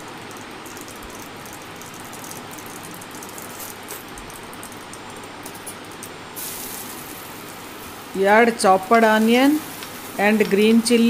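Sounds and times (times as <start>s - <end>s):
seeds sizzling in hot oil: 0.6s - 4.0s, 6.3s - 11.0s.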